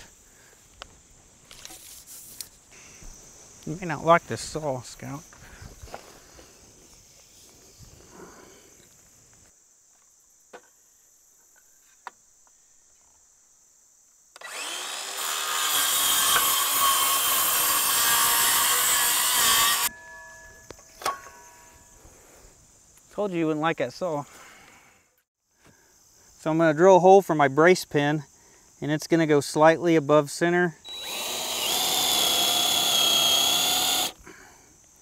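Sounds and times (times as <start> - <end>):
circular saw cutting wood: 14.4 - 19.9, 30.9 - 34.2.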